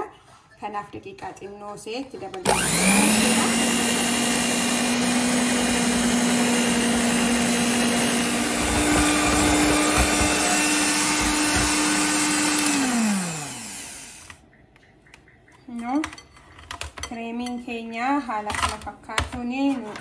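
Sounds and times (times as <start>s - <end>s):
electric hand mixer whining: 2.4s - 14.4s.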